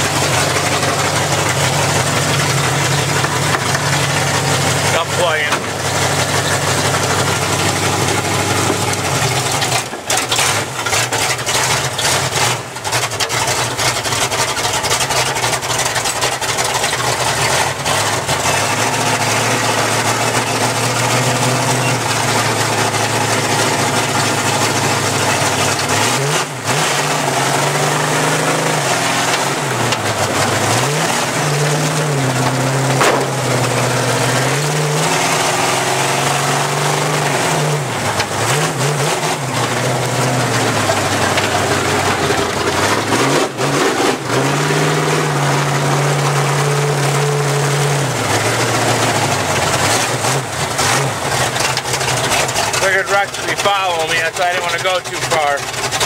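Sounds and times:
truck engine revving: 0.0 - 56.0
loud drive noise: 21.7 - 45.9.

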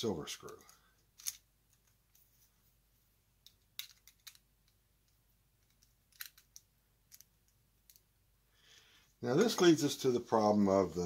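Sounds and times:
small parts clicking in fingers: 0.4 - 2.2, 3.4 - 8.1.

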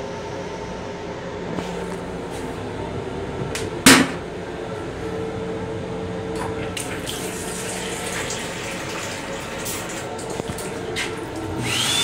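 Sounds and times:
steady hum: 0.0 - 12.0
faucet running water: 6.4 - 12.0.

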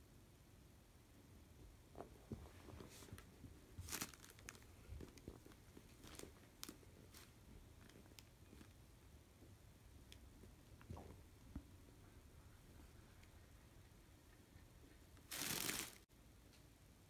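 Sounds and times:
plastic bag crinkling: 3.8 - 8.2, 15.3 - 16.0.

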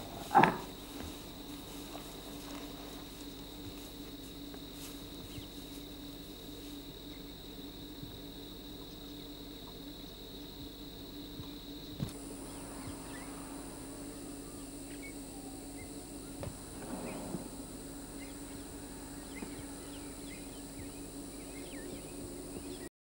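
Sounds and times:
low hum: 0.0 - 22.9
small birds chirping: 0.0 - 22.9
steady high hiss: 0.0 - 22.9
brief low rumble: 12.1 - 22.2.

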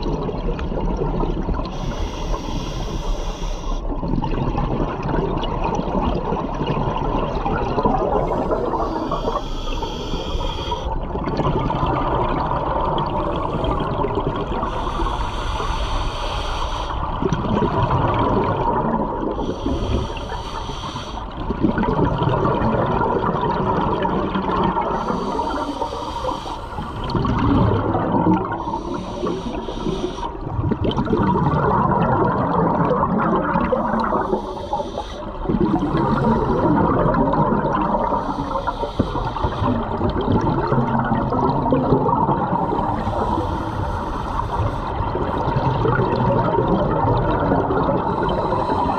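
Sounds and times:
bubbling of exhaled air: 0.0 - 48.9
regulator hiss on inhale: 1.7 - 3.9, 8.2 - 11.0, 14.7 - 17.1, 19.4 - 21.4, 24.9 - 27.2, 28.6 - 30.5, 33.8 - 36.8, 38.0 - 39.8, 42.6 - 45.1, 48.0 - 48.9.

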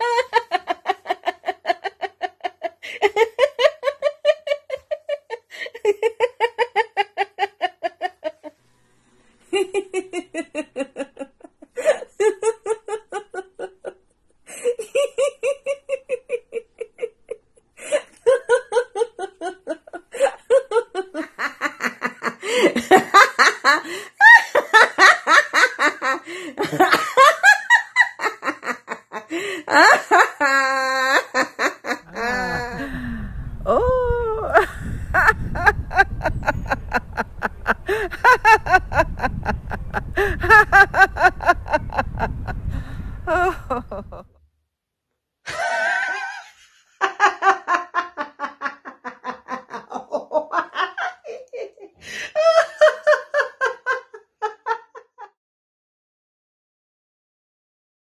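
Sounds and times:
woman laughing heartily: 0.0 - 8.6, 9.4 - 44.3, 45.5 - 55.4
woman exclaiming: 32.1 - 32.8
sharp inhale: 42.6 - 43.2.

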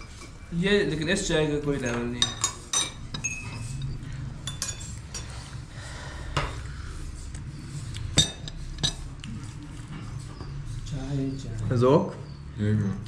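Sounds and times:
crockery and cutlery clinking: 0.0 - 5.6, 8.0 - 10.6.

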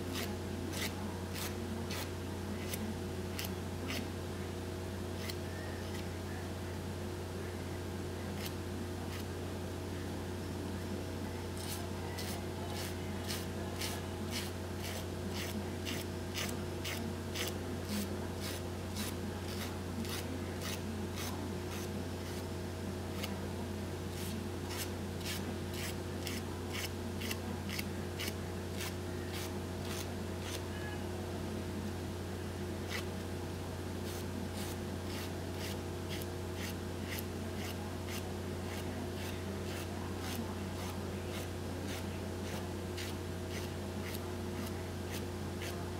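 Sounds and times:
steady low hum: 0.0 - 45.9
nail file rasping: 11.6 - 21.9, 24.2 - 30.6, 34.1 - 45.8.

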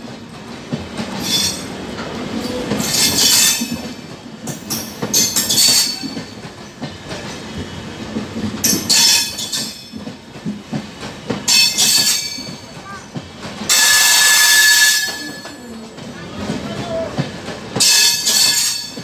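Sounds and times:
train wheels clattering over rail joints: 0.0 - 19.0.

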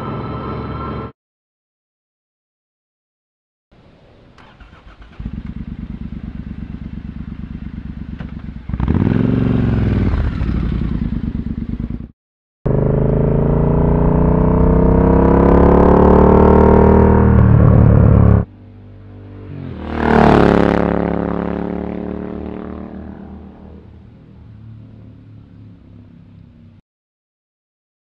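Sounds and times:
motorcycle engine revving: 4.4 - 12.1, 12.7 - 25.2.

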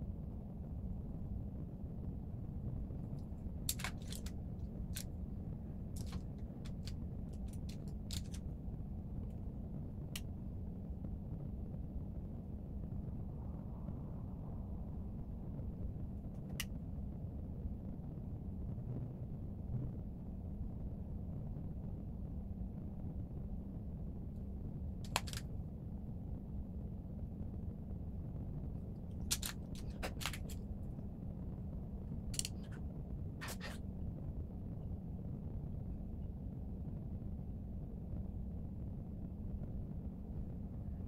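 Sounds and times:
low room hum: 0.0 - 41.0
small sharp clicks: 3.1 - 5.2, 5.9 - 8.5, 25.0 - 25.5, 29.2 - 30.7, 32.2 - 33.8.

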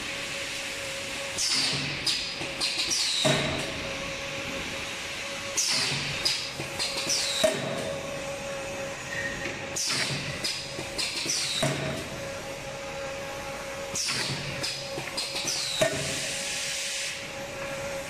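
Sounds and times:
forming press clacks and hisses: 1.3 - 3.8, 5.4 - 8.0, 9.3 - 12.1, 13.9 - 17.3.

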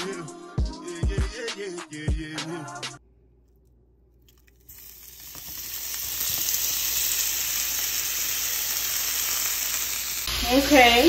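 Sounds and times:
shrimp sizzling in oil: 4.6 - 11.0.

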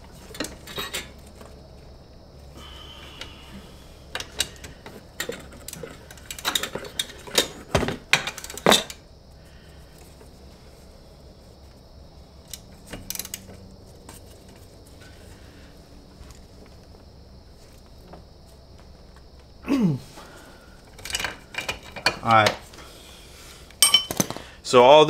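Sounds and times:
wrench clicking and clinking on metal: 23.8 - 24.2.

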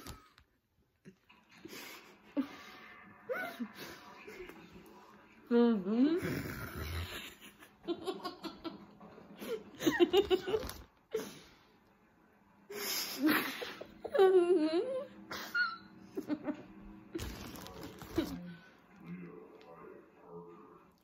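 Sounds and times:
girls laughing: 7.2 - 11.3, 13.0 - 16.9.

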